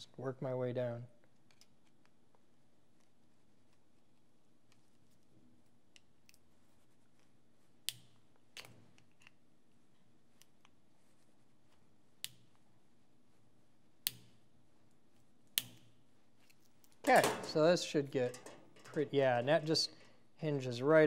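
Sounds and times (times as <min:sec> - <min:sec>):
spot welds snapping: 0:15.5 - 0:16.0.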